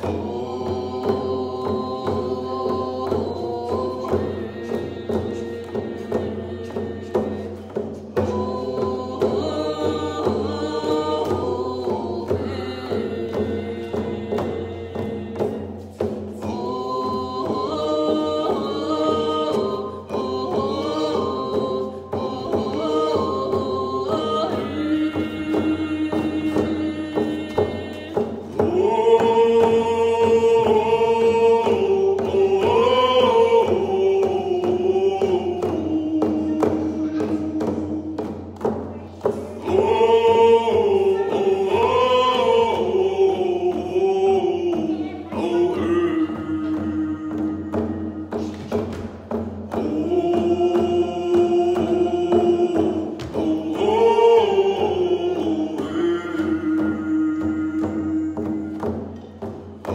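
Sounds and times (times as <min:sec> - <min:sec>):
frame drums beating: 0:00.0 - 0:59.9
group singing in unison: 0:00.0 - 0:59.9.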